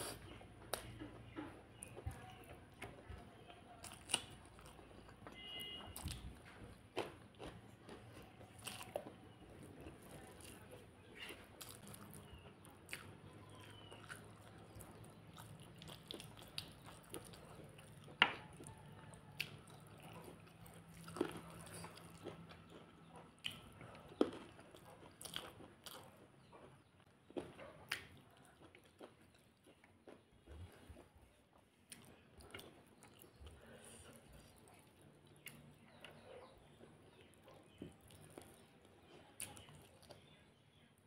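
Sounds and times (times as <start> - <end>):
person chewing and lip smacking: 0.0 - 40.4.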